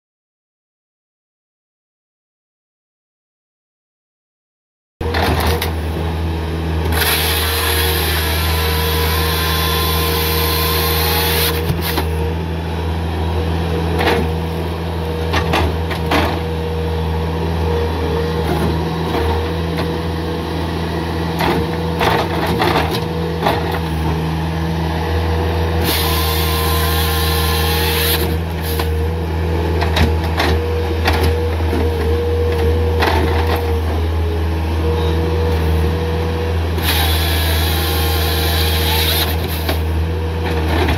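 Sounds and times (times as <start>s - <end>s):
diesel engine running: 5.0s - 40.9s
hydraulic whine: 6.8s - 12.4s, 25.0s - 29.0s, 36.7s - 39.9s.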